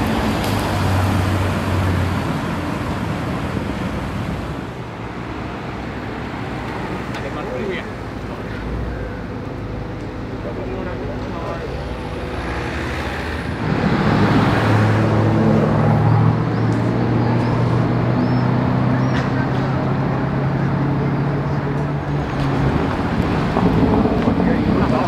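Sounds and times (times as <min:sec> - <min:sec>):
loud car exhaust: 0:08.5 - 0:25.0.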